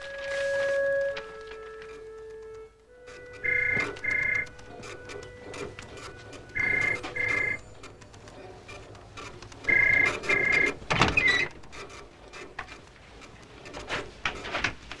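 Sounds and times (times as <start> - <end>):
faint clicks and rustling: 0.0 - 15.0
telephone ringing: 0.6 - 11.6.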